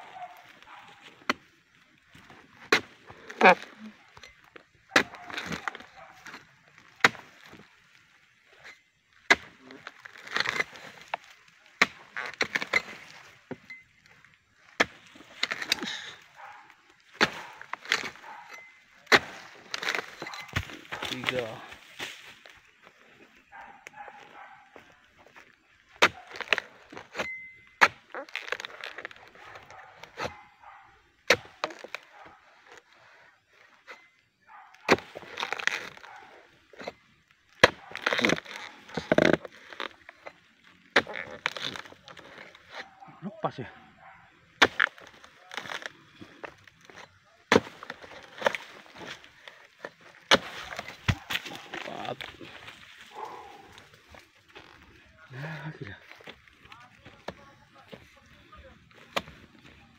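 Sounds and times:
dry fronds rustling: 14.5s - 25.9s, 47.7s - 59.9s
chisel striking palm stalk: 44.6s - 52.3s.

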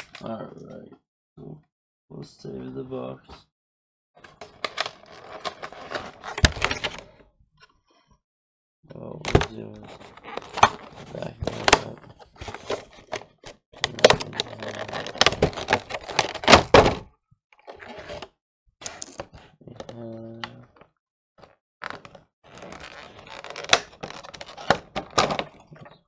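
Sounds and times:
plastic packaging clicking and crinkling: 9.3s - 16.9s, 21.8s - 25.9s.

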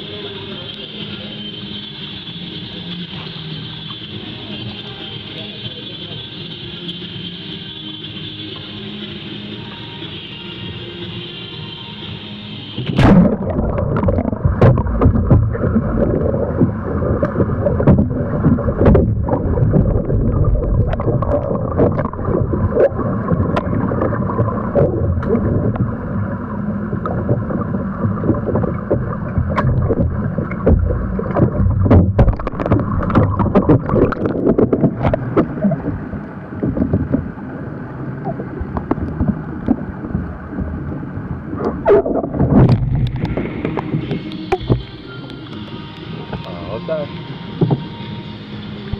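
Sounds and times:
muffled underwater water sloshing: 12.7s - 48.9s
paddle strokes splashing: 12.8s - 46.5s.

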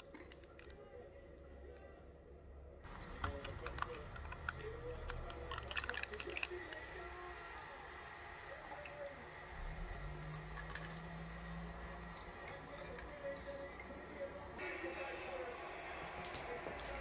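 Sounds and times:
sugar sachets tearing: 2.9s - 7.8s.

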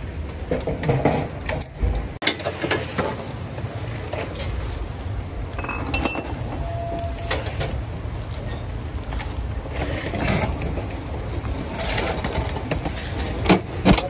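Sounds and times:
metal clinks and knocks: 5.6s - 7.8s.

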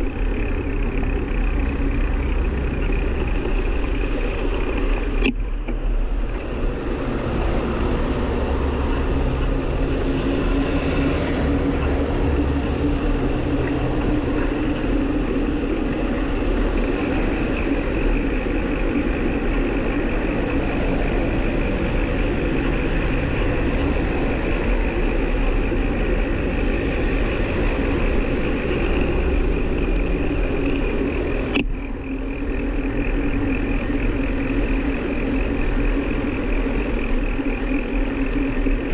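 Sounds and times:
bicycle tyres rolling: 0.0s - 38.9s
steady hum: 0.0s - 38.9s
wind rumble: 0.0s - 38.9s.

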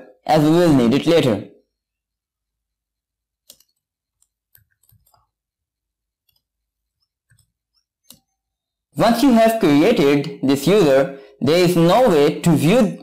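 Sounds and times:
mouse and keyboard clicks: 3.4s - 5.3s.

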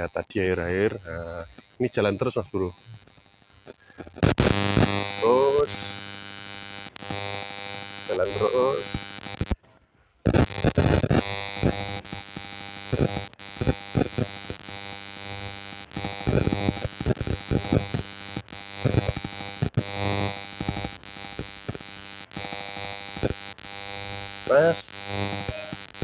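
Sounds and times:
steady hum: 0.0s - 9.6s.

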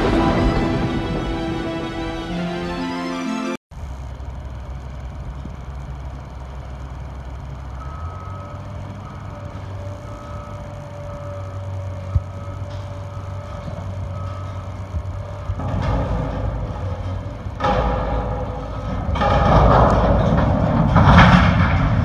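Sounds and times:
construction machinery engine rumble: 0.0s - 3.1s, 3.7s - 22.0s
backup alarm beeping: 7.5s - 17.6s.

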